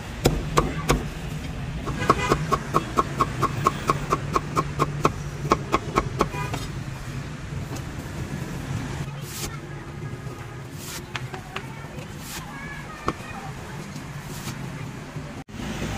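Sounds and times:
cleaver chopping on wooden block: 1.9 - 6.6.

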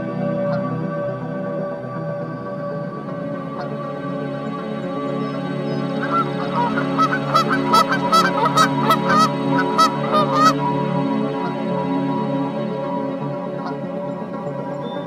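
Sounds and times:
background music drone: 0.0 - 15.0
geese honking: 6.0 - 10.6.

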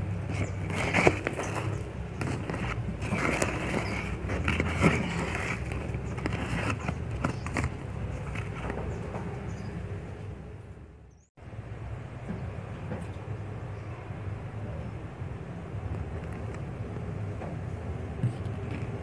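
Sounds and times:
spatula stirring thick paste: 0.2 - 8.7.

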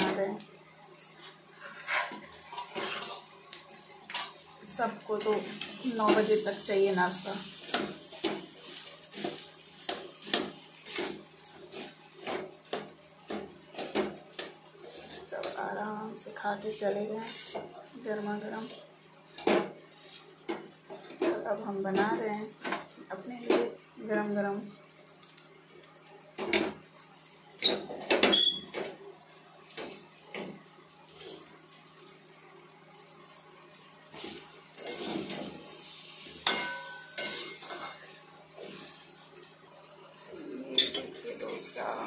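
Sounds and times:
metal spoon scraping griddle: 1.0 - 3.3, 5.1 - 12.4, 13.7 - 15.6, 17.2 - 17.7, 34.1 - 39.0.

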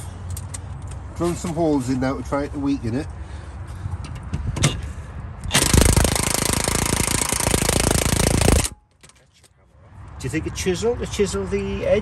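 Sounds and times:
cordless power tool rattling: 5.5 - 8.8.

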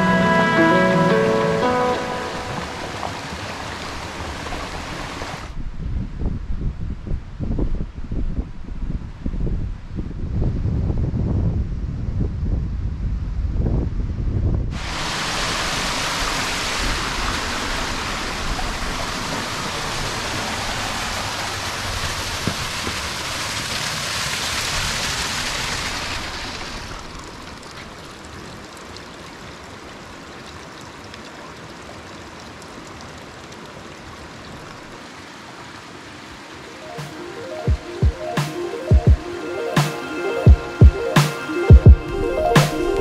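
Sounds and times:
stream water rushing: 0.0 - 5.6, 14.8 - 43.0.

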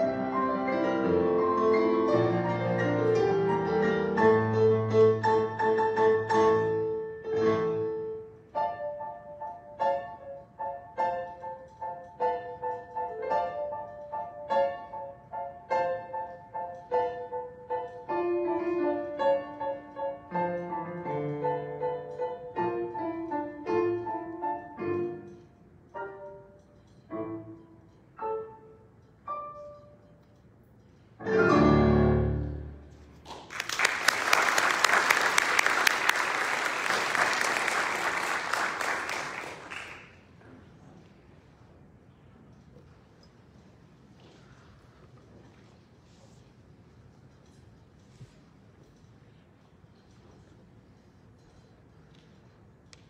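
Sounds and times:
slow piano piece: 0.0 - 41.1
congregation applauding: 33.2 - 40.4.

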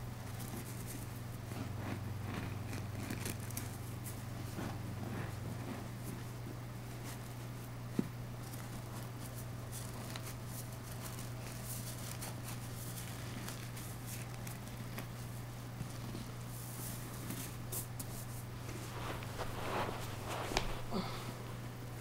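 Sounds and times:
steady low hum: 0.0 - 22.0
hands rustling and clicking: 6.9 - 21.2.

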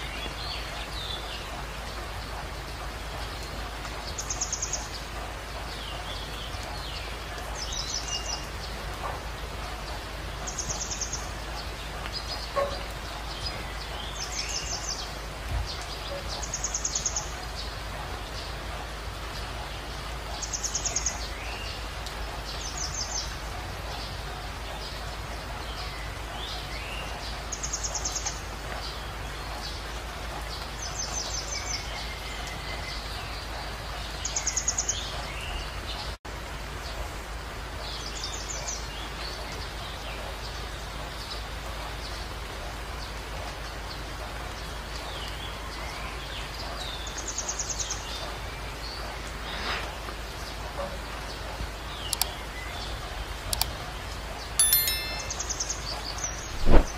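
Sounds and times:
birds chirping: 54.6 - 56.9.

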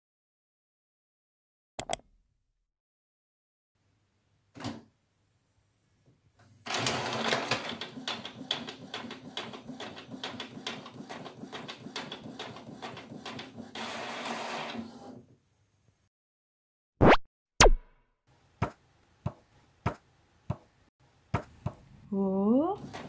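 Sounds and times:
inkjet printer clicking and whirring: 6.7 - 15.1, 22.8 - 23.0.

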